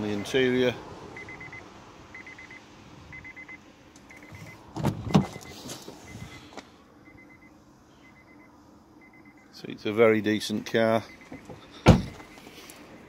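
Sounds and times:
car warning chime beeps: 0.0 - 0.5, 1.2 - 9.6, 11.0 - 13.0
car door clunks: 4.2 - 6.6, 11.2 - 12.4.

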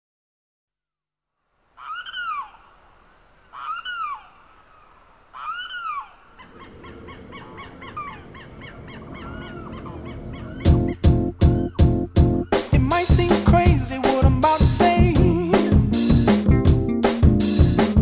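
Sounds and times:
flock of geese honking: 5.4 - 11.0
geese calling: 5.4 - 13.0
low rumble: 6.5 - 11.0.

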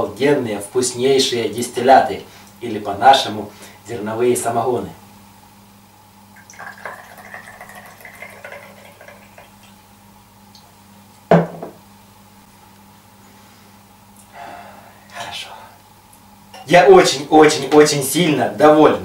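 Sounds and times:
liquid pouring into shot glass: 6.4 - 9.8.

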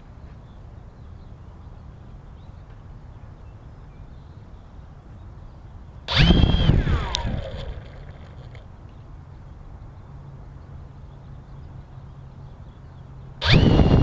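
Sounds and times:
drone motors whining: 6.1 - 8.6, 13.4 - 14.0.

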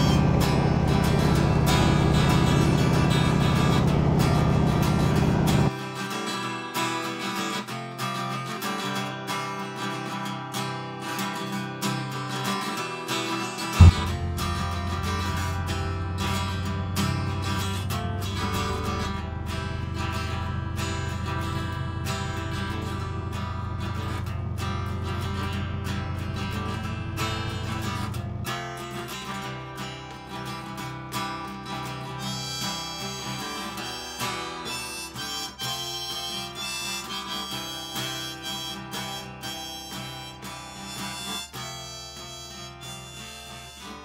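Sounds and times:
loud aircraft engine noise: 0.0 - 5.7, 13.8 - 28.5
strummed acoustic guitar: 0.0 - 44.0
short thump: 13.8 - 14.6.

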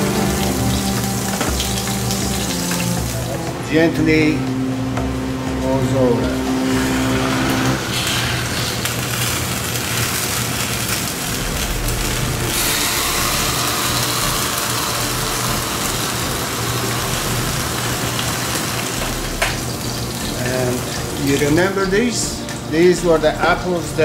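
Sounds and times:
gas range hum and hiss: 0.0 - 24.0.

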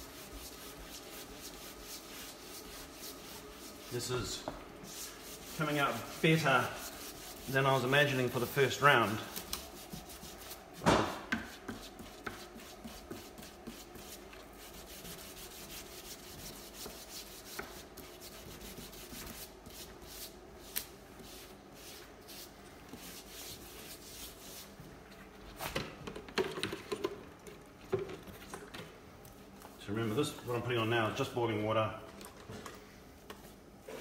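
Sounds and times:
brush scrubbing wet wood: 0.0 - 24.8
sharp knock: 10.8 - 11.3.

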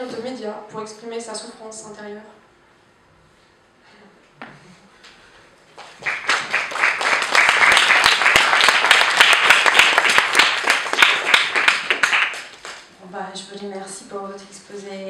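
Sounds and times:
audience applauding: 5.8 - 12.9.

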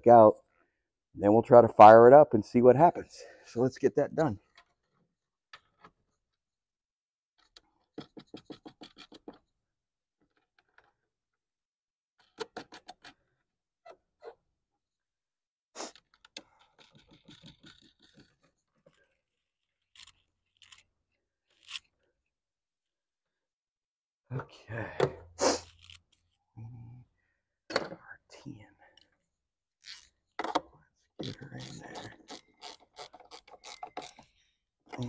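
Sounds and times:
ratchet wrench clicking: 29.8 - 30.1, 32.3 - 34.2.

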